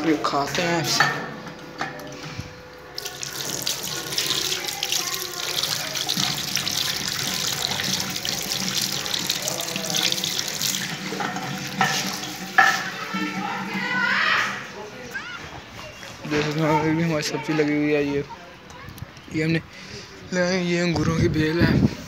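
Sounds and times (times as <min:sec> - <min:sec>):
radish rinsed by hand: 0:02.9 - 0:13.9
tap water running into washbasin: 0:02.9 - 0:14.1.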